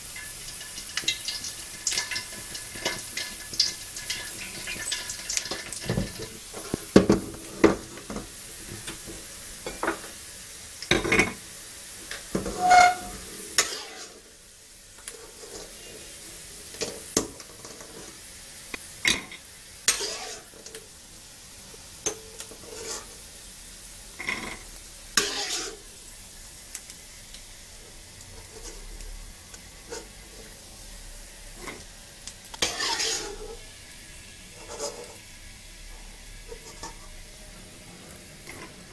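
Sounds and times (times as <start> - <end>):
faint frying sizzle: 0.0 - 38.9
spatula scraping and clinking: 19.9 - 20.5, 25.2 - 25.8, 32.6 - 33.6, 34.6 - 35.2.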